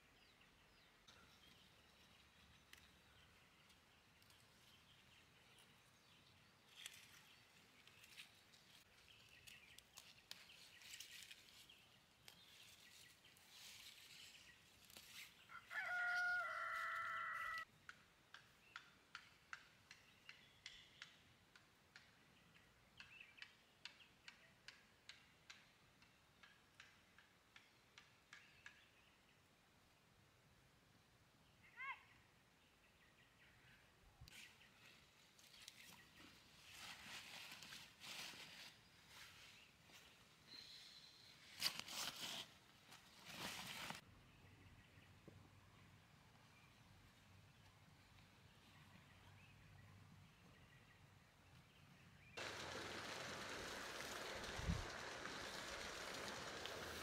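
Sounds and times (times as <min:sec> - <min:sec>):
rooster crowing: 0:15.5 - 0:17.7.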